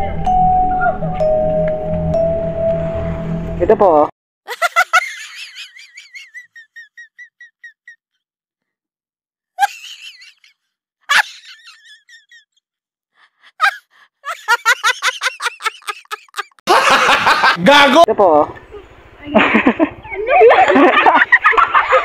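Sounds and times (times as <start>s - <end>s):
women laughing: 4.5s - 8.0s, 9.6s - 12.6s, 13.3s - 18.0s, 18.8s - 22.0s.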